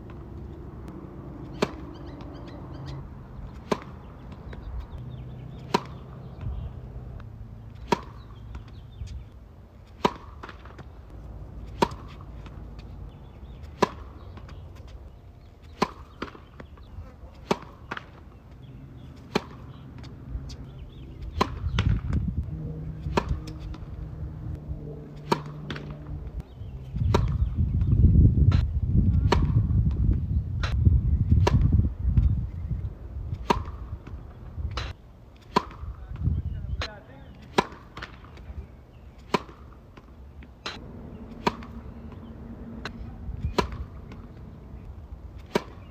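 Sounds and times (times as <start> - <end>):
racket hitting tennis ball: 0.0 - 31.8, 33.2 - 45.9
low rumble: 20.2 - 33.4, 40.8 - 45.2.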